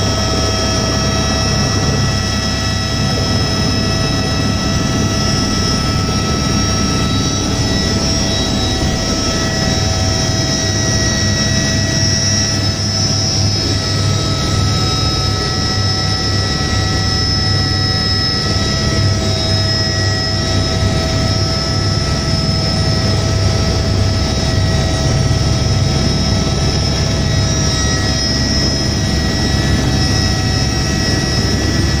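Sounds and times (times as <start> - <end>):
helicopter turbine whine: 0.0 - 32.0.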